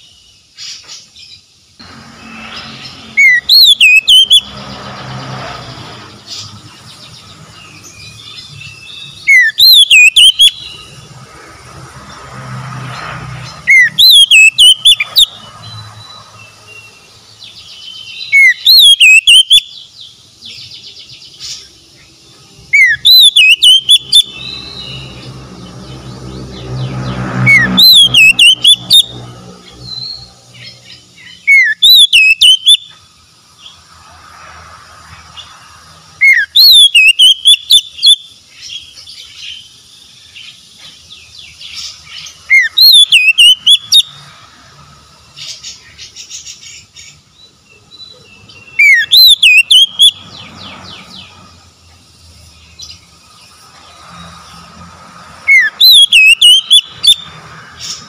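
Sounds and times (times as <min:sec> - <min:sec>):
bird singing whistled phrase: 0:03.2 - 0:04.5, 0:08.5 - 0:10.8, 0:13.7 - 0:15.4, 0:17.9 - 0:19.7, 0:22.7 - 0:25.0, 0:27.5 - 0:29.1, 0:31.4 - 0:32.9, 0:36.2 - 0:38.2, 0:42.5 - 0:44.0, 0:48.7 - 0:50.2, 0:55.5 - 0:57.2.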